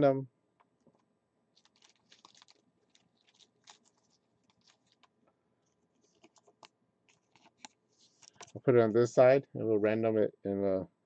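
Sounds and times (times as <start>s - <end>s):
cards scratching and clicking: 1.6s - 5.1s, 6.0s - 8.5s.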